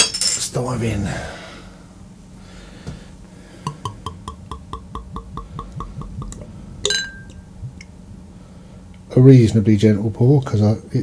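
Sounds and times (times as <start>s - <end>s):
glass clink: 3.7s - 7.5s
beer glugging from bottle: 3.7s - 7.9s.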